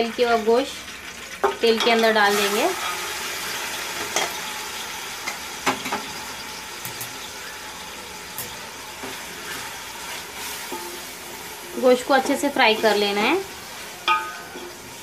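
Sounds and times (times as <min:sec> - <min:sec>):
meat sizzling in hot oil: 0:00.0 - 0:15.0
utensils knocking against pot: 0:14.0 - 0:14.8.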